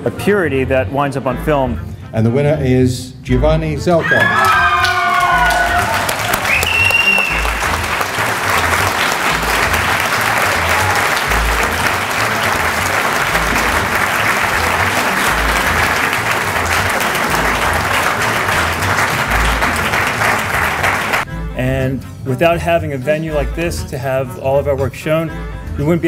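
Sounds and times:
audience applauding: 0:04.3 - 0:21.3.

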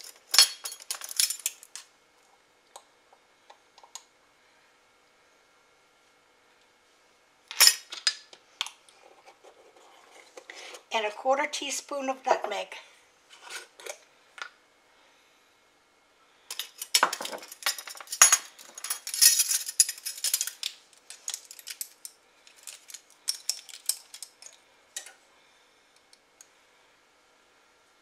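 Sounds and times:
glass jar clinking and rattling: 0:00.0 - 0:01.7, 0:16.5 - 0:24.6.

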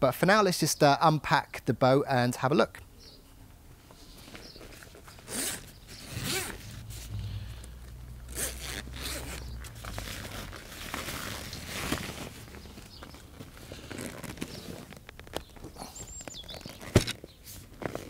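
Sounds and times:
bag fabric rustling: 0:04.1 - 0:18.0
zipper being pulled open: 0:04.8 - 0:15.1.

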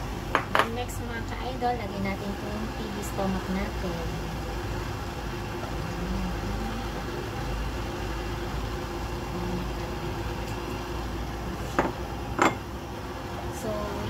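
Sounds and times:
faint constant hum: 0:00.0 - 0:14.0.

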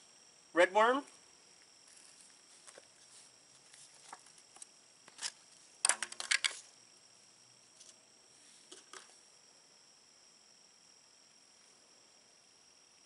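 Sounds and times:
soil and worms rustling: 0:00.7 - 0:10.6
cup tapped over soil: 0:08.7 - 0:09.2.

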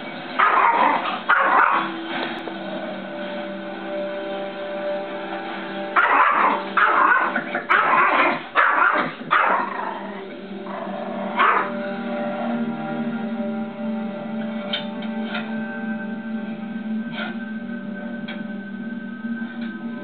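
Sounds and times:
tv soundtrack music: 0:00.0 - 0:20.0
small dog barking: 0:00.4 - 0:01.9, 0:06.0 - 0:09.7, 0:11.4 - 0:11.7.

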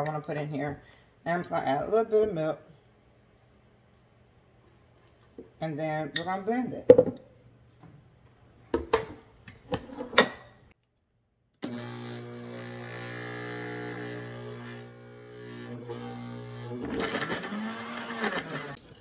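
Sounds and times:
blender motor running: 0:11.6 - 0:18.8.

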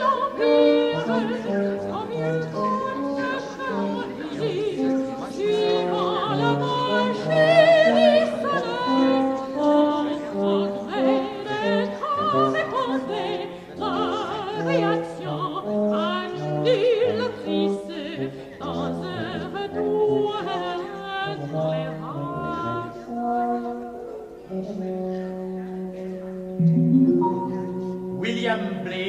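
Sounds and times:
orchestral music: 0:26.6 - 0:29.0.

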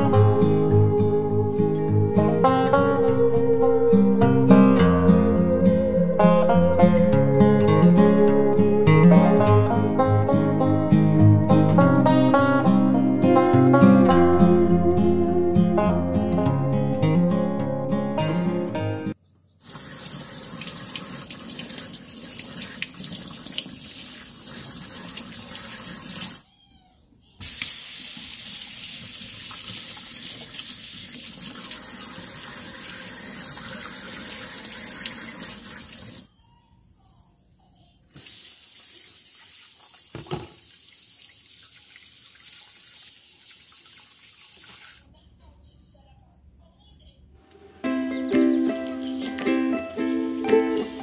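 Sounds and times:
tap water splashing into sink: 0:19.7 - 0:26.4, 0:38.2 - 0:45.0.

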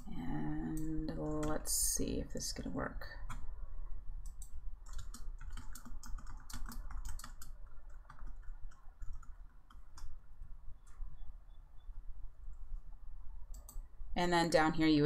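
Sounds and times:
low steady hum: 0:00.0 - 0:15.0
typing on keyboard: 0:00.7 - 0:01.8, 0:04.3 - 0:10.2.

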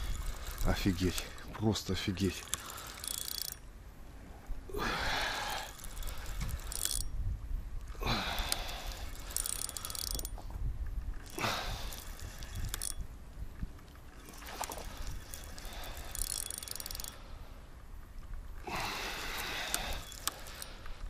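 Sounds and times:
fishing reel whirring and clicking: 0:00.0 - 0:03.7, 0:05.0 - 0:07.2, 0:07.8 - 0:10.4, 0:11.0 - 0:13.2, 0:13.8 - 0:17.3, 0:18.7 - 0:21.0.

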